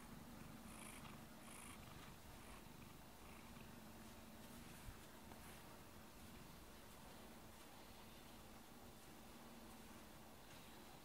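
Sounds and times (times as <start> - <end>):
cat purring: 0.0 - 6.5.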